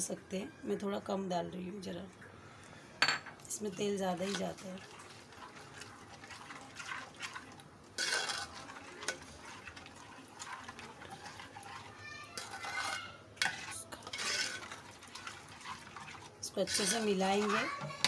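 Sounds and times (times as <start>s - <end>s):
spoon stirring thick mixture: 3.5s - 18.0s
spoon scraping steel bowl: 4.2s - 18.0s.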